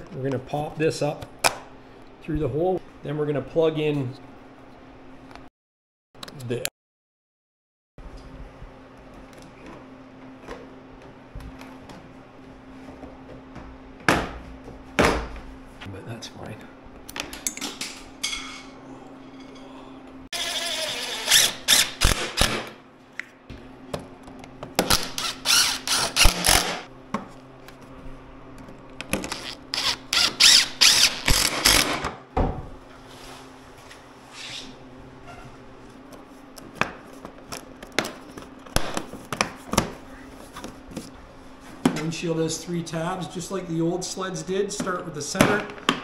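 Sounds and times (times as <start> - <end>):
cordless driver driving screws: 29.3 - 32.0.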